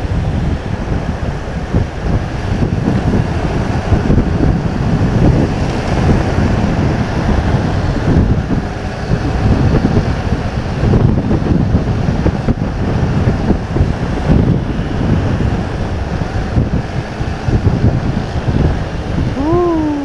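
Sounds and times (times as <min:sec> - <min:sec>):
motorcycle road noise: 0:00.0 - 0:20.0
wind buffeting microphone: 0:00.0 - 0:20.0.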